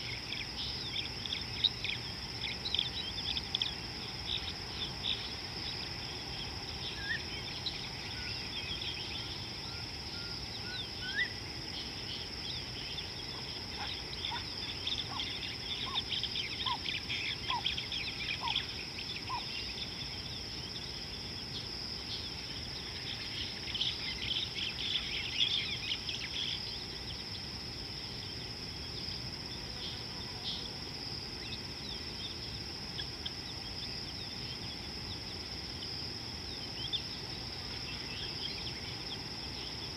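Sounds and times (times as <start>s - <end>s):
birds chirping: 0.0s - 21.0s
insect trill: 0.0s - 39.9s.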